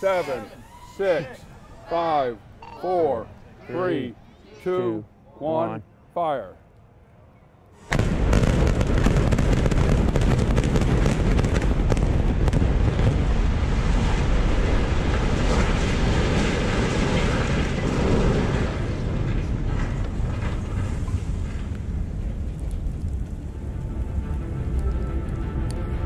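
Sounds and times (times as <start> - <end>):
sharp cracks of demolition charges: 7.9 - 23.4
heavy rumble of building collapsing: 7.9 - 24.8.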